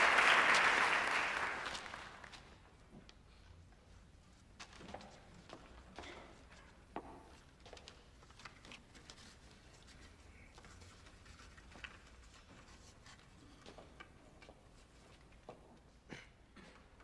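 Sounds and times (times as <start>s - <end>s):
faint small clicks and rustles: 7.4s - 15.9s.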